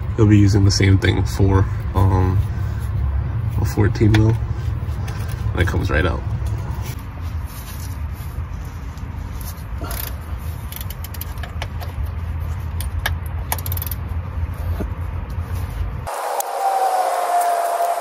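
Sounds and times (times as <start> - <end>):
ratchet and bolts clicking: 9.9 - 12.1, 12.7 - 14.1.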